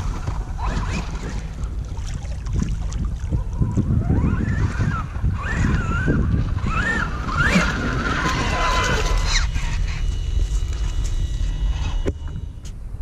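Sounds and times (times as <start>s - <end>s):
wind rumble on microphone: 0.0s - 13.0s
electric motor whining: 3.3s - 12.8s.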